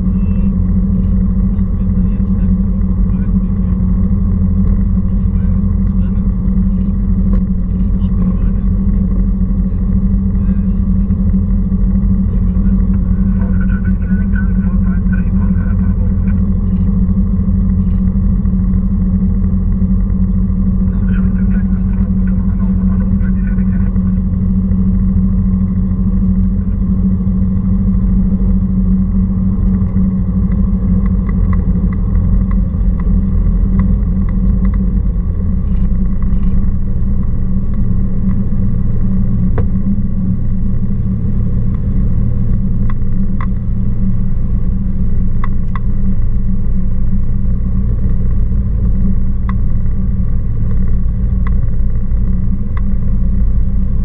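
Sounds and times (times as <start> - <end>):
small plane engine droning: 0.0 - 54.0.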